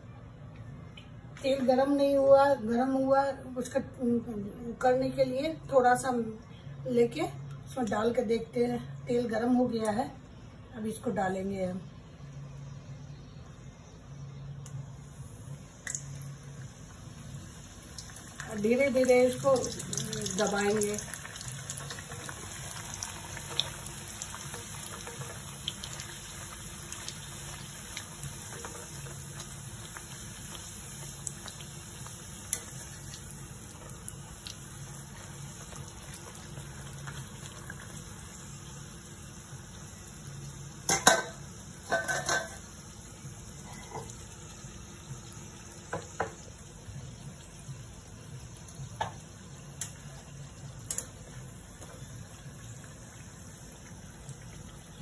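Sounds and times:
frying in hot oil sizzle: 0:12.2 - 0:55.0.

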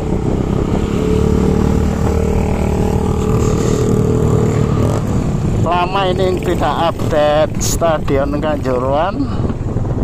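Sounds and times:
small motorcycle engine running: 0:00.0 - 0:05.4.

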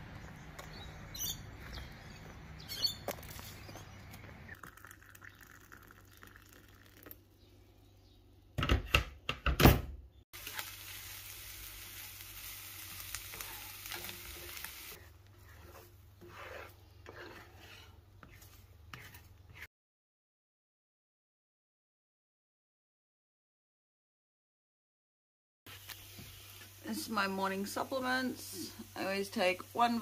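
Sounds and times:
vegetables sizzling in frying pan: 0:10.4 - 0:15.0, 0:25.7 - 0:30.0
spatula stirring in pan: 0:10.4 - 0:19.7.

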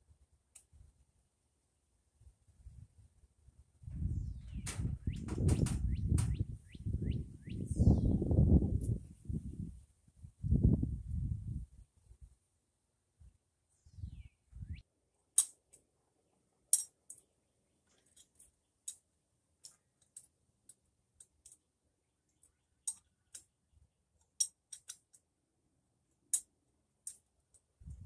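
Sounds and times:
hand tool metal clicks: 0:16.7 - 0:17.3, 0:22.4 - 0:23.5, 0:24.2 - 0:25.2.

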